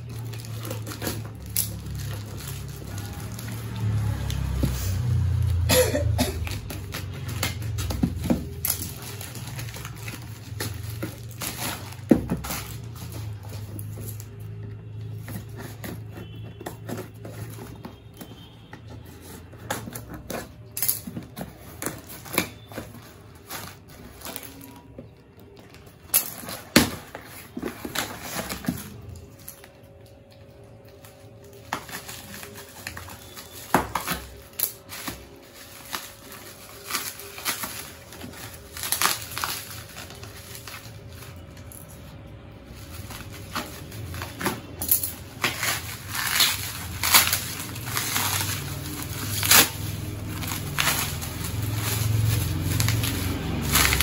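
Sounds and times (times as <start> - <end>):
plastic crinkling: 0.0 - 54.0.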